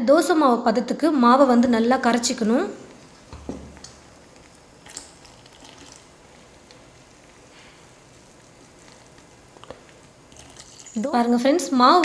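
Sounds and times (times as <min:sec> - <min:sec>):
faint stirring batter in glass bowl: 0:02.4 - 0:11.3.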